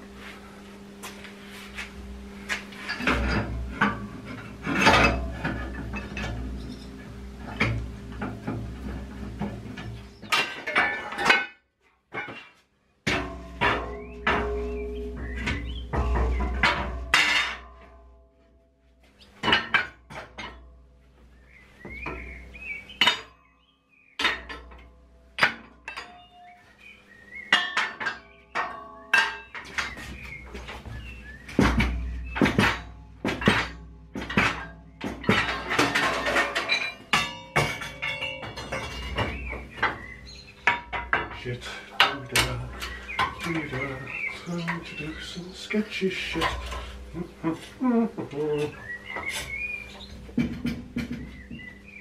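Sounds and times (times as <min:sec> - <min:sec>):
steel plates clanking on metal: 0:02.8 - 0:11.6, 0:13.1 - 0:18.2, 0:24.2 - 0:26.4, 0:27.4 - 0:51.3.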